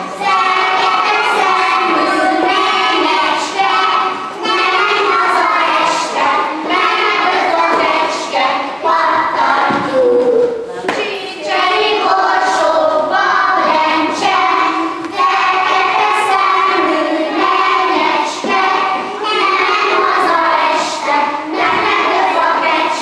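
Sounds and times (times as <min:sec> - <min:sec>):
children singing in unison: 0:00.0 - 0:23.0
women singing along: 0:00.0 - 0:23.0.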